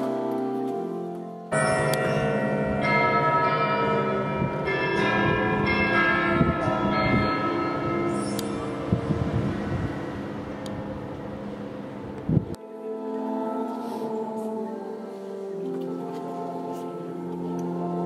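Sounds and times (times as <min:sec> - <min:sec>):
church bells ringing: 0:00.0 - 0:13.5.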